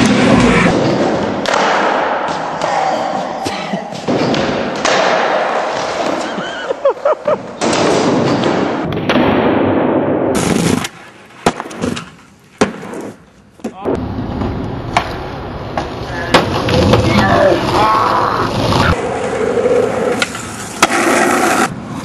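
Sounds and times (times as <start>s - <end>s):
skateboard wheels rolling on concrete: 0.0s - 1.8s, 10.3s - 22.0s
skateboard clatter: 18.6s - 22.0s
skateboard clacks: 19.1s - 21.7s.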